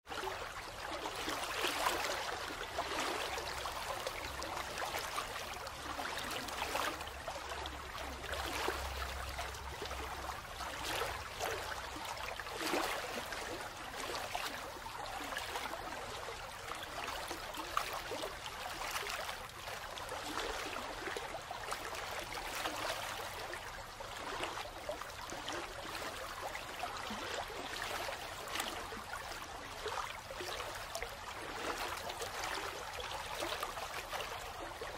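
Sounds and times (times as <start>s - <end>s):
running water: 0.1s - 34.9s.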